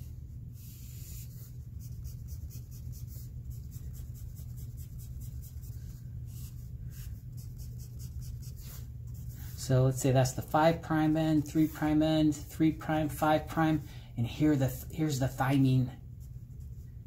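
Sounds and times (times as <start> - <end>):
steady low hum: 0.0 - 17.0
pencil scratching on paper: 0.6 - 9.6.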